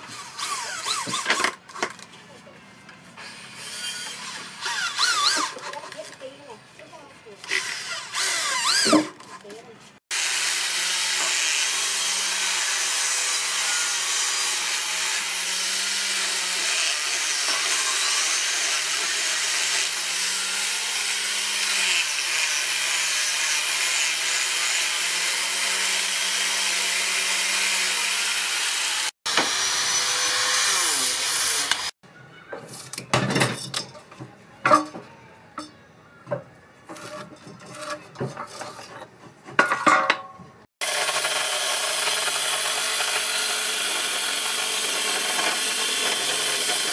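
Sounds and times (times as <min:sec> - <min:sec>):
angle grinder sanding wood: 0:10.1 - 0:32.0, 0:40.8 - 0:46.9
scrapes and knocks on wooden board: 0:36.3 - 0:39.9.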